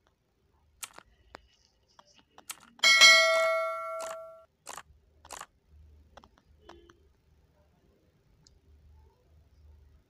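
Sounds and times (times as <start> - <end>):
hand tools clicking and knocking: 2.8 - 4.4
ringing metallic clang: 2.8 - 4.4.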